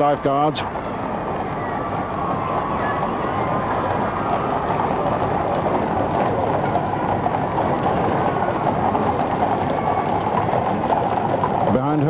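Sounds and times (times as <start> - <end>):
large crowd cheering: 0.0 - 12.0.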